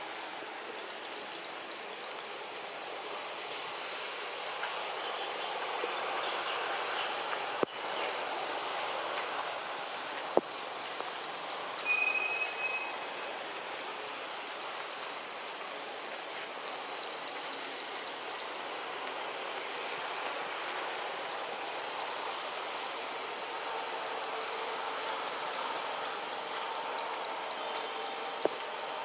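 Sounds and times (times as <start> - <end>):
forest background hiss: 0.0 - 29.0
brief high-pitched call: 11.8 - 13.0.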